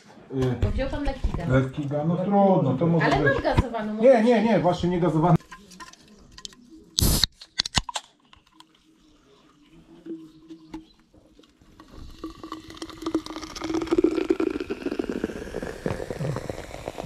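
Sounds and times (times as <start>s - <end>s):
fizzy drink pouring gurgling: 11.6s - 17.0s.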